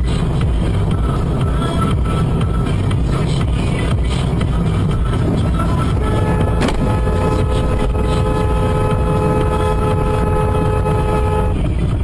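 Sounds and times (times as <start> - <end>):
road and wind rumble inside car: 0.0 - 12.0
two-tone car horn: 6.0 - 11.7.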